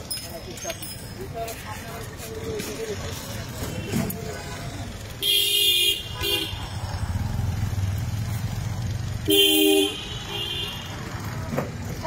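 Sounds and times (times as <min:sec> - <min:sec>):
low traffic rumble: 0:00.0 - 0:12.0
vehicle horn honking: 0:05.2 - 0:06.6, 0:09.3 - 0:10.9.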